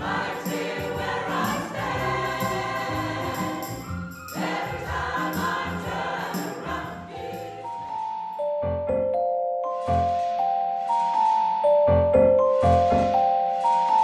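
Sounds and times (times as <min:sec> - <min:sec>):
choir singing gospel song: 0:00.0 - 0:08.3
keyboard with steady beat: 0:00.0 - 0:14.0
long held ringing music notes: 0:08.0 - 0:14.0.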